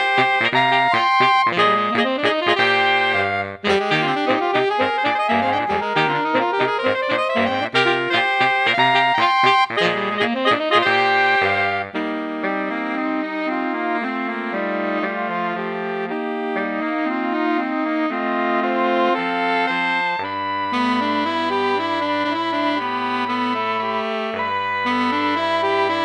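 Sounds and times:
saxophone quartet: 0.0 - 26.0.

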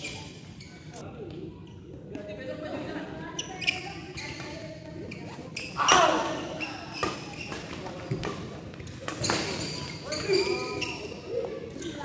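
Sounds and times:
shoes squeaking on court floor: 0.0 - 1.0, 3.3 - 12.0.

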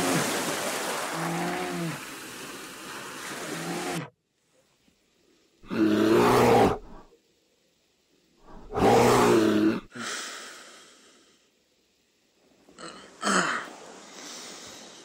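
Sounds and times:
bear roaring: 5.6 - 7.0, 8.5 - 9.9.

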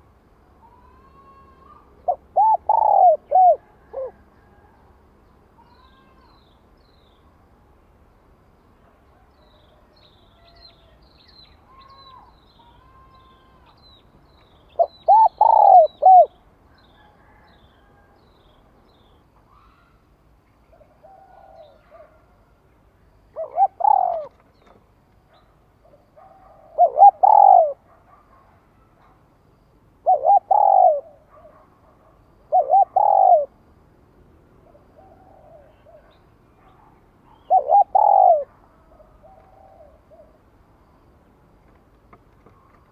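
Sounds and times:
dove cooing: 0.9 - 4.6, 14.8 - 16.4, 20.7 - 22.4, 23.2 - 24.5, 25.8 - 29.2, 30.0 - 33.6, 34.6 - 40.4
small birds chirping: 9.4 - 17.8, 35.0 - 40.4.

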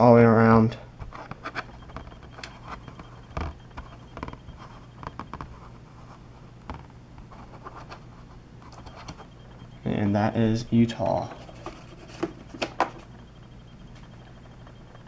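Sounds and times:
plastic helmet clicks and scrapes: 1.0 - 5.6.

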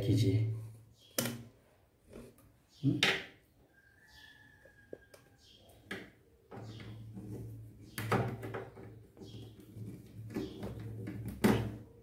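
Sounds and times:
plastic rubbing and scraping: 6.5 - 12.0.

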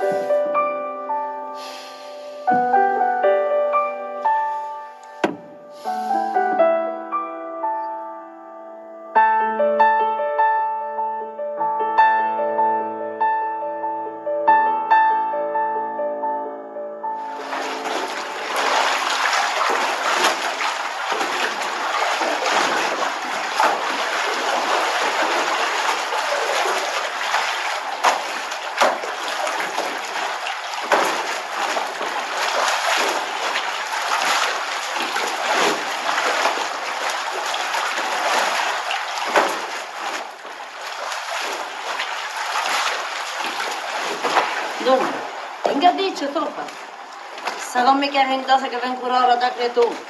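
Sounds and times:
water splashing and sloshing: 0.0 - 0.4, 4.3 - 6.6, 17.2 - 50.0
wet cloth slap: 17.8 - 45.8.

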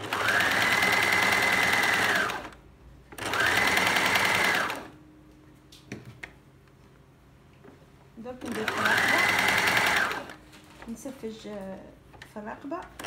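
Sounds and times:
sewing machine stitching: 0.0 - 2.6, 3.2 - 4.9, 8.4 - 10.4.

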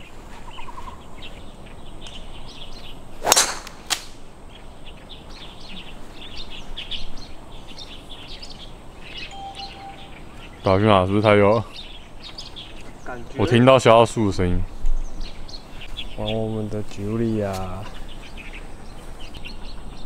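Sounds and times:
birds chirping: 0.0 - 20.0
golf club striking ball: 3.2 - 4.1.

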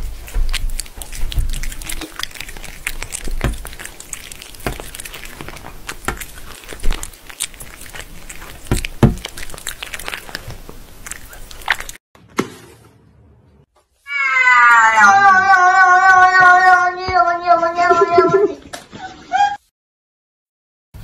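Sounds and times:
cats chewing crunchy treats: 0.0 - 12.0.

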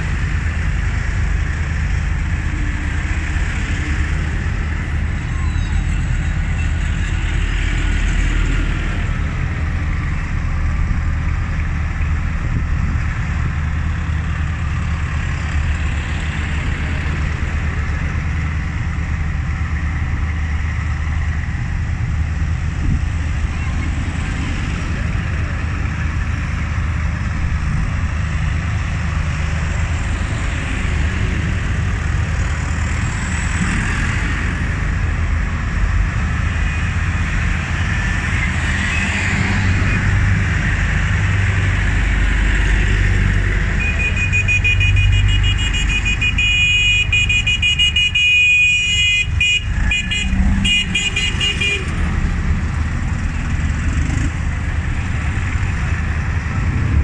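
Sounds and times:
tractor engines rumbling: 0.0 - 57.0
vehicle horn: 43.8 - 52.0.

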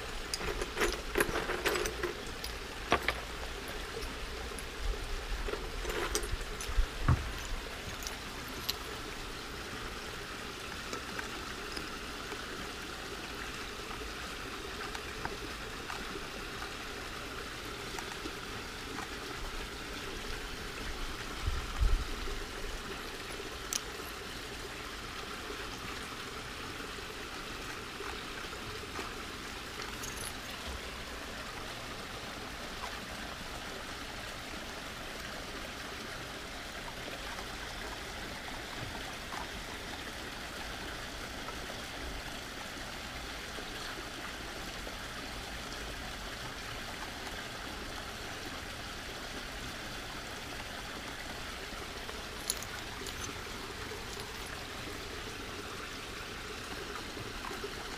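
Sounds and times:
trickle of running water: 0.0 - 57.9.

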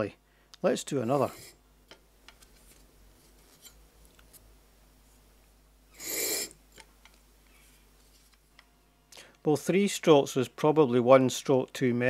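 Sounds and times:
blade scraping on whetstone: 1.1 - 1.6.

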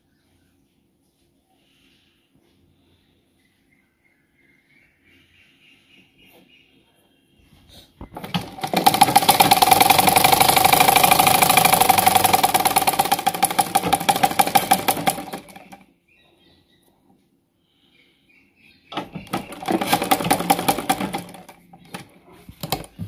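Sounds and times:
sewing machine stitching: 8.1 - 15.8, 19.0 - 23.0.

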